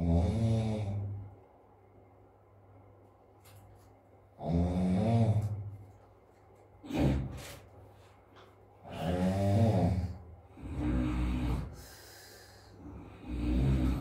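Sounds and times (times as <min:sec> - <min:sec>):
person snoring heavily: 0:00.0 - 0:01.2, 0:04.4 - 0:05.6, 0:08.8 - 0:14.0.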